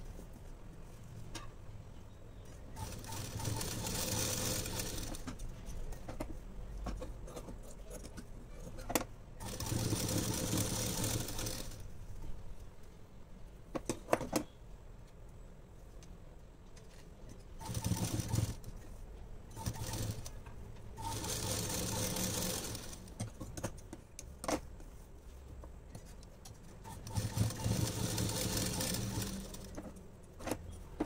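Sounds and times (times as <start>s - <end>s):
sewing machine stitching: 2.8s - 5.3s, 9.4s - 11.8s, 17.6s - 18.7s, 19.5s - 20.4s, 21.0s - 23.1s, 26.8s - 29.8s.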